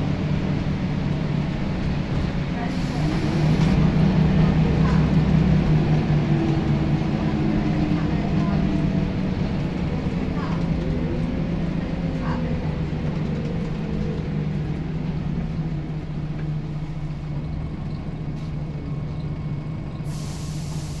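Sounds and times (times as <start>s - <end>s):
bus engine droning: 0.0s - 21.0s
hiss: 20.0s - 21.0s.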